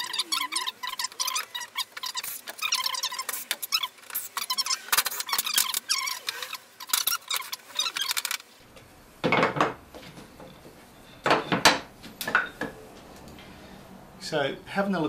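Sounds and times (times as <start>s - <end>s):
squeaky clicks of wooden parts: 0.0s - 8.5s.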